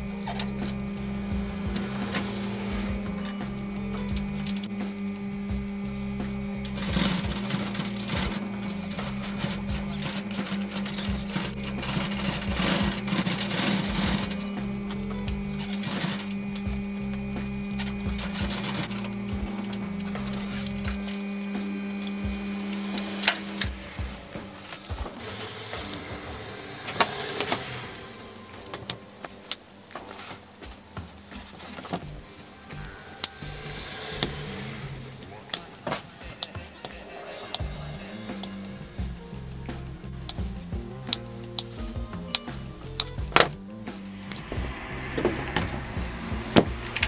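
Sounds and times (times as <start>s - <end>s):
sewing machine stitching: 6.6s - 16.4s, 18.2s - 19.1s
vinyl rustling: 26.8s - 33.0s.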